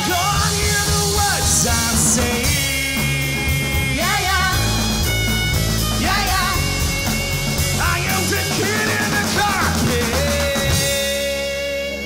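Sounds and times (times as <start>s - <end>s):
woman singing: 0.0s - 5.0s, 6.0s - 7.1s
drums: 0.0s - 12.0s
live rock band playing: 0.0s - 12.0s.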